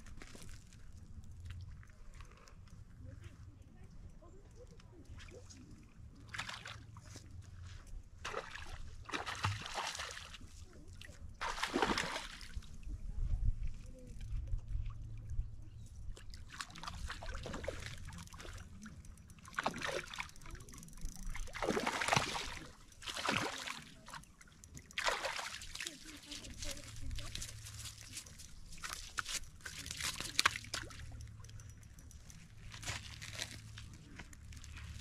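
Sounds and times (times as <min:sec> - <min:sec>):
fish splashing at surface: 0:11.4 - 0:12.6, 0:21.2 - 0:24.2, 0:24.9 - 0:28.2.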